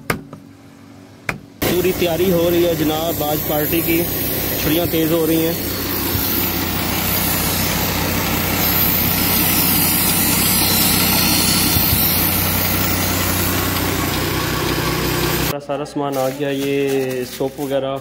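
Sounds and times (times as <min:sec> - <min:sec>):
knives grinding on wheel: 0:01.8 - 0:14.2.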